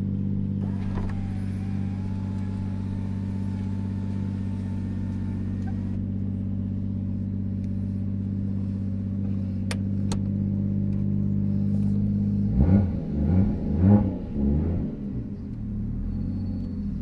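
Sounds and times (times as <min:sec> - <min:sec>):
car engine idling: 0:00.0 - 0:17.0
engine revving: 0:00.6 - 0:06.0, 0:11.5 - 0:17.0.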